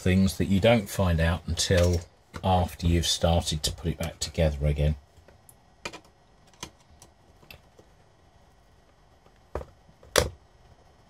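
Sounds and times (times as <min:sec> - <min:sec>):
clicks and taps of parts: 0:05.2 - 0:07.6.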